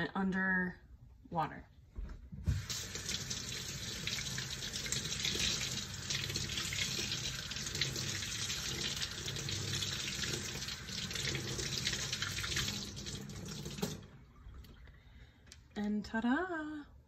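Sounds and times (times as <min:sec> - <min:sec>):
tap water running into sink: 0:02.4 - 0:14.7.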